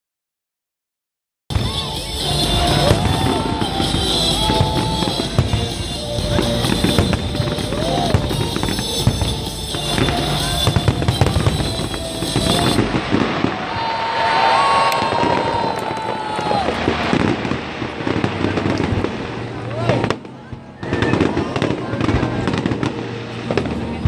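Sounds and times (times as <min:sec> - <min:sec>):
fireworks shells bursting: 0:01.5 - 0:19.3
music playing: 0:01.5 - 0:24.0.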